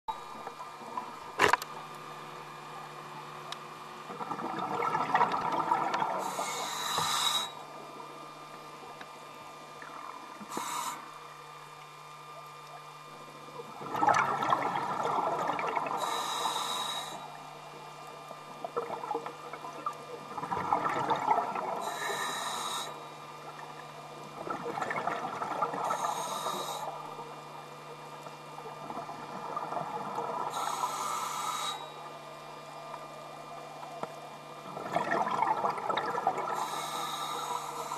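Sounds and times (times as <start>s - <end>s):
steady low hum: 0.1s - 37.9s
exhaust bubbles bubbling: 4.0s - 6.4s, 13.6s - 16.0s, 18.3s - 21.9s, 23.4s - 26.0s, 28.4s - 30.5s, 34.1s - 36.6s
regulator hissing inhalations: 6.2s - 7.6s, 10.4s - 11.1s, 16.0s - 17.3s, 21.8s - 23.0s, 25.8s - 27.0s, 30.5s - 32.0s, 36.6s - 37.9s.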